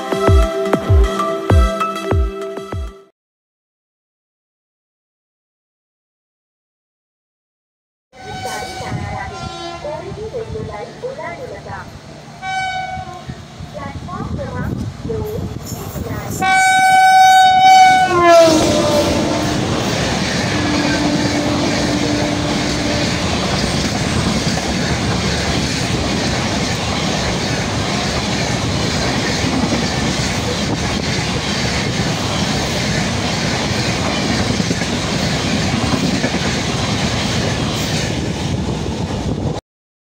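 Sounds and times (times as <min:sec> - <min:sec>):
train horn: 0:08.2 - 0:10.2, 0:12.4 - 0:13.4, 0:16.4 - 0:23.5
train coaches rushing past: 0:08.2 - 0:39.5.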